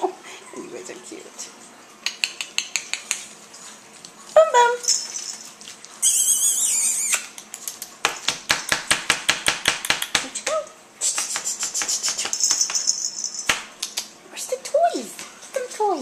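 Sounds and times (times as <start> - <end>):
sharp clicks and taps: 2.0 - 3.2
puppy squealing: 6.0 - 7.4
puppy yipping: 6.0 - 7.4.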